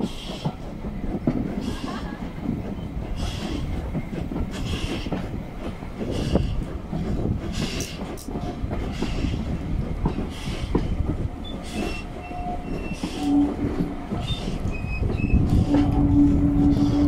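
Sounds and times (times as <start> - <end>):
steam locomotive exhaust beats: 0.0 - 17.0
wheels squealing: 10.3 - 17.0.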